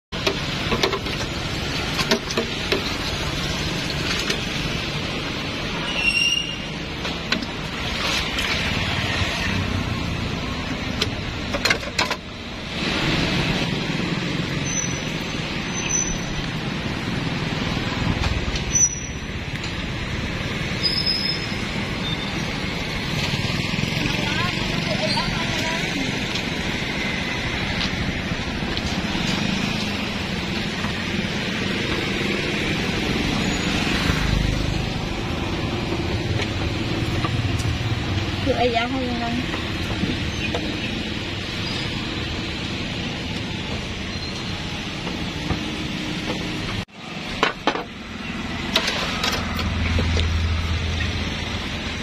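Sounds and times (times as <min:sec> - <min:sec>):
road traffic noise: 0:00.1 - 0:52.0
sharp clicks and knocks: 0:00.2 - 0:03.1, 0:10.9 - 0:12.4.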